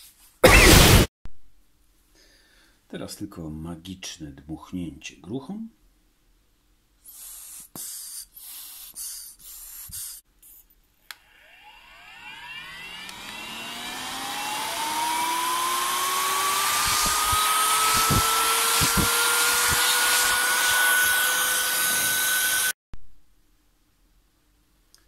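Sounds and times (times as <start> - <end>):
electric air blower whining: 11.2 - 22.8.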